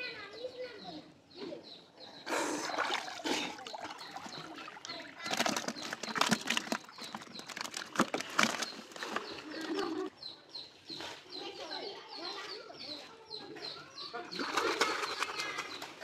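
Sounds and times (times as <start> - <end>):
water splashing: 2.3 - 10.0, 14.3 - 16.0.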